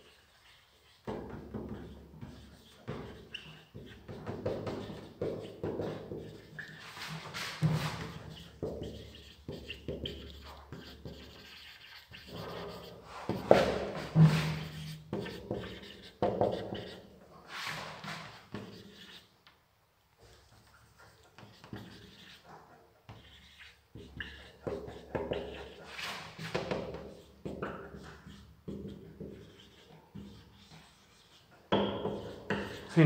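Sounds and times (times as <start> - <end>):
marker squeaking on whiteboard: 0.0 - 19.3, 20.2 - 33.0.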